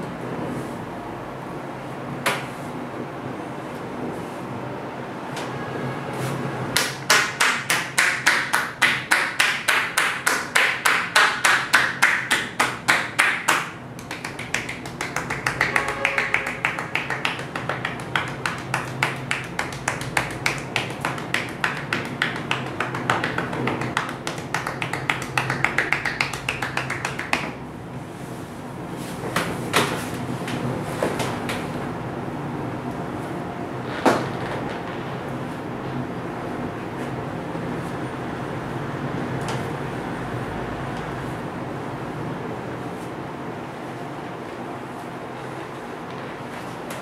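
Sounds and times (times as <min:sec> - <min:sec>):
hands slapping a back: 0:06.8 - 0:27.5.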